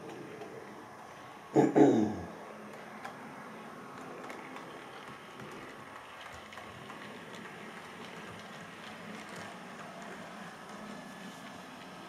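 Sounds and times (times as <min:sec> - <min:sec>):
wheels clicking over rails: 0:02.6 - 0:12.0.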